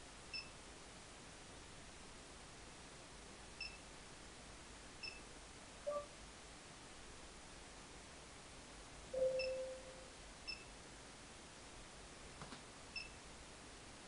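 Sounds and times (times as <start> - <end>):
faint steady hiss: 0.0 - 14.0
short high touch-screen beeps: 5.9 - 6.1, 9.2 - 10.7
medium electronic tone: 5.9 - 6.2, 9.1 - 10.6.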